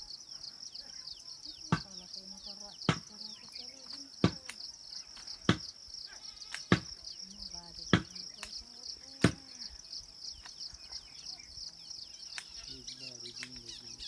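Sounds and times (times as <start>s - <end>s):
insects chirring: 0.0s - 14.0s.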